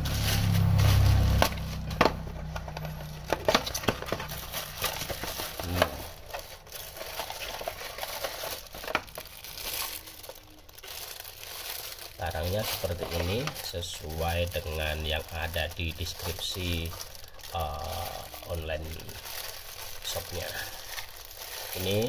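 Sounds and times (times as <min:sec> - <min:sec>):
low rumble: 0:00.0 - 0:06.4
cardboard flaps scraping: 0:00.0 - 0:06.6
plastic wrap crinkling: 0:00.0 - 0:22.0.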